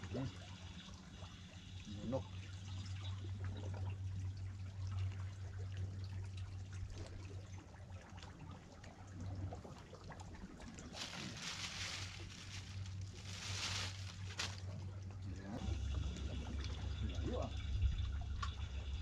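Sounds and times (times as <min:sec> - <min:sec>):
steady low hum: 0:00.0 - 0:19.0
water lapping against rocks: 0:04.9 - 0:17.0
rustling hiss: 0:10.9 - 0:14.8.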